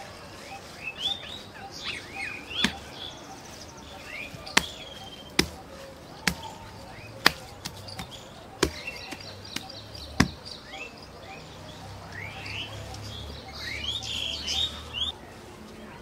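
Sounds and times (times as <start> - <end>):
birds chirping: 0.0 - 16.0
wet dung slapped by hand: 2.6 - 2.9, 4.3 - 6.6, 7.2 - 10.4.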